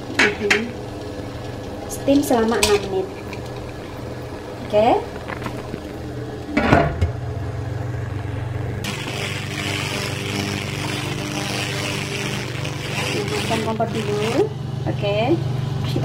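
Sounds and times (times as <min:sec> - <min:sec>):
steady hiss: 0:08.8 - 0:14.4.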